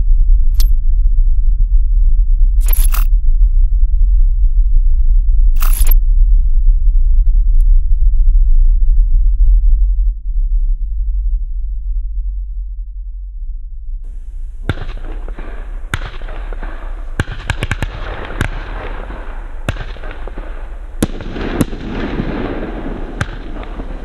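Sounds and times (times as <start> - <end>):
low rumble: 0.0 - 24.0
crackling hiss: 14.1 - 24.0
fireworks bangs: 14.1 - 24.0.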